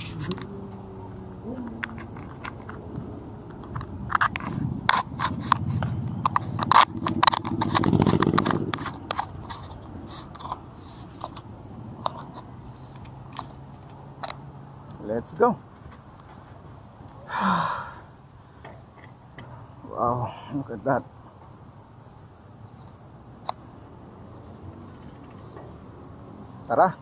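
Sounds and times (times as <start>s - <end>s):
clicks crunches and scrapes: 3.5s - 14.4s.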